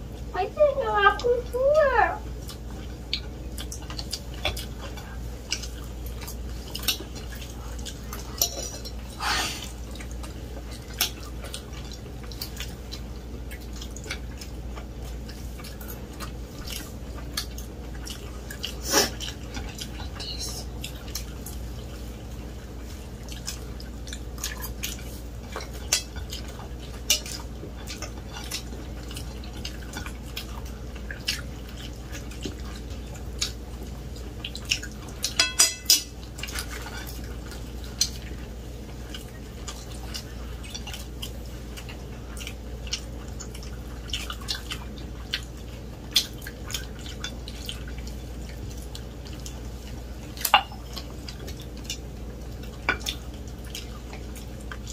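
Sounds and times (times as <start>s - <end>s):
forks clinking on ceramic plates: 8.4s - 8.9s, 35.3s - 36.1s.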